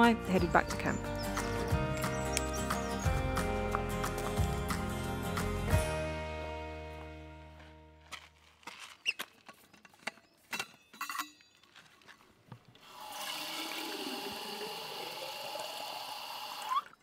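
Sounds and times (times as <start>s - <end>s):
water filling a steel bottle: 12.8s - 17.0s.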